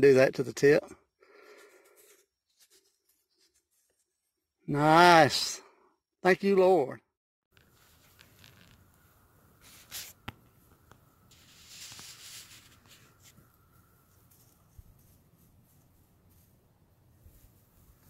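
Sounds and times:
faint rustling: 7.6 - 18.0.

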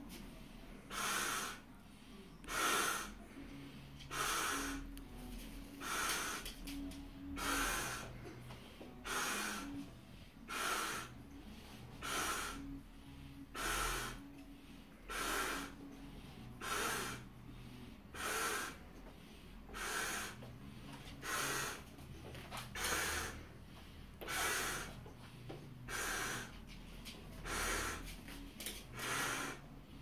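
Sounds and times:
breath blowing into balloon: 0.8 - 1.8, 2.4 - 22.0, 22.7 - 30.0
man breathing hard: 0.8 - 4.9, 7.2 - 22.1, 22.8 - 30.0.

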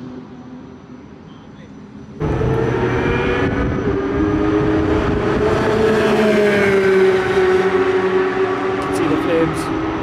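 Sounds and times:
sports car engines racing: 2.2 - 10.0.

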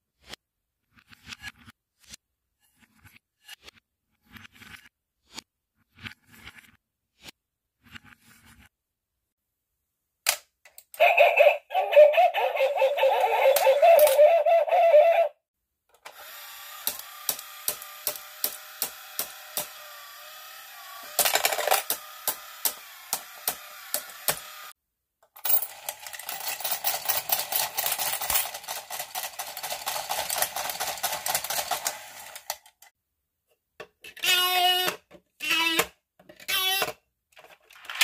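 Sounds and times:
mechanism whirring and clicking: 16.0 - 24.7, 25.6 - 32.9
small motor humming with clicks: 16.0 - 24.7.

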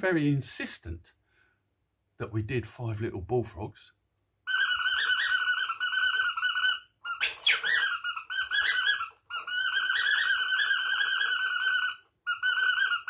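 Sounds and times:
high squeaky puppet voice: 4.5 - 13.0.

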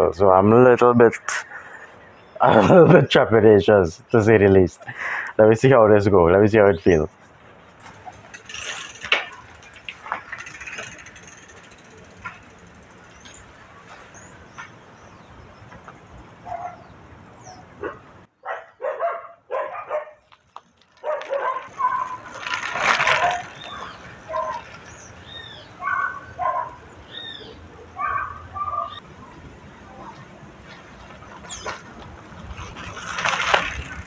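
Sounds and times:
birds chirping: 0.0 - 33.0
dogs barking: 16.4 - 20.2, 21.0 - 22.3, 23.1 - 24.7, 25.8 - 29.0.

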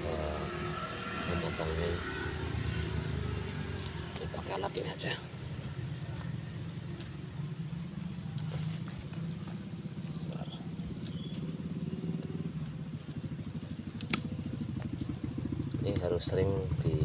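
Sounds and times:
pruning shears snipping: 13.8 - 14.5.

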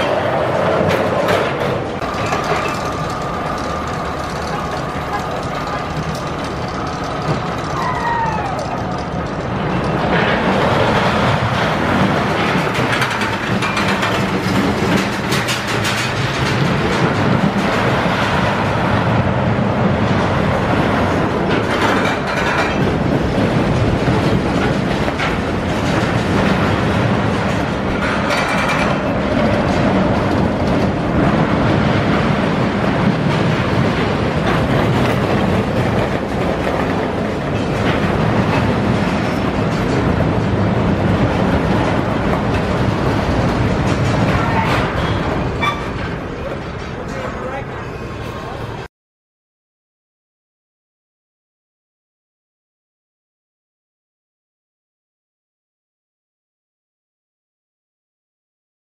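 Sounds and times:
roller coaster wheels rumbling: 0.0 - 48.9
fast dense clatter of clicks: 8.6 - 18.4.

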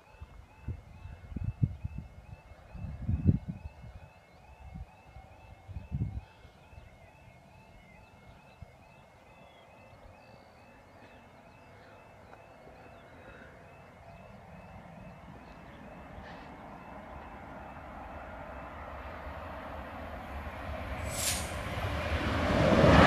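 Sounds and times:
faint birdsong: 0.0 - 21.6
level crossing warbling alarm: 0.0 - 23.0
electric train rumble: 10.9 - 23.0.

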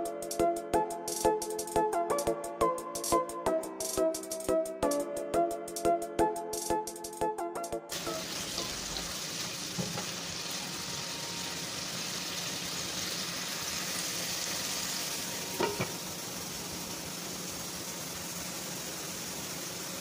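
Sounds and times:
chicken sizzling in a pan: 7.9 - 20.0
glass lid clinking on pan: 15.5 - 16.0.

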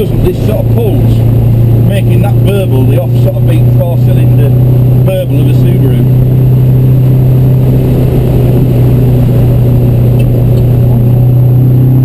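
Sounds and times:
car engine humming: 0.0 - 12.0
wind rumbling on microphone: 4.5 - 12.0.

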